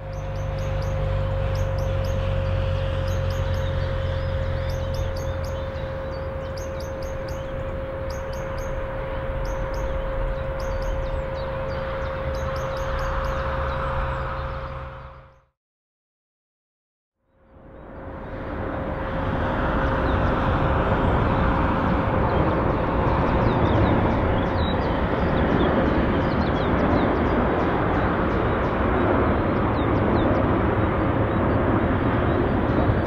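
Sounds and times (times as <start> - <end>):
small birds chirping: 0.0 - 8.8, 9.4 - 14.8
constant hum: 0.0 - 15.4, 17.2 - 33.0
low rumble: 0.0 - 15.4.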